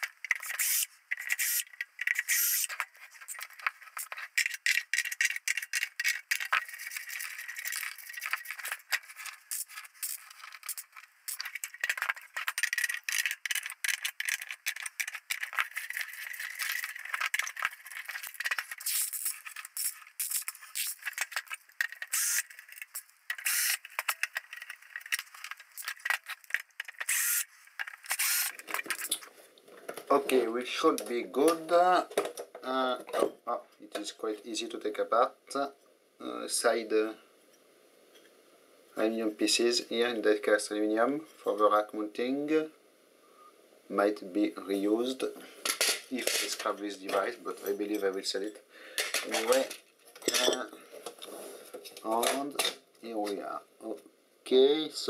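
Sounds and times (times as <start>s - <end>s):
metal case and screws rattling: 0.0s - 27.2s.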